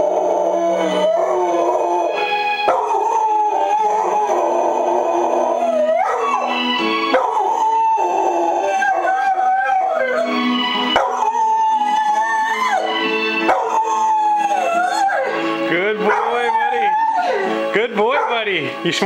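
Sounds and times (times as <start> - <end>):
dog howling: 0.0 - 18.5
tv theme music: 0.0 - 19.0.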